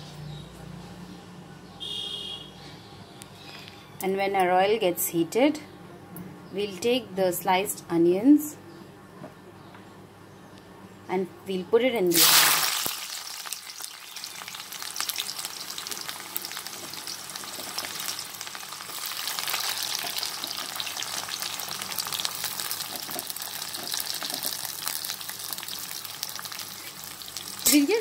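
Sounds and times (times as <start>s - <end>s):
onions sizzling in oil: 12.1s - 28.0s.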